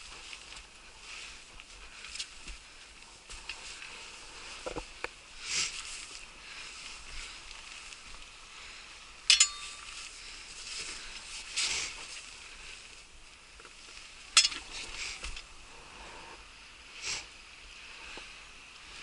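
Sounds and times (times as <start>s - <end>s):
faint steady hiss: 0.0s - 19.0s
sharp ringing clinks: 9.3s - 10.1s, 14.4s - 14.7s.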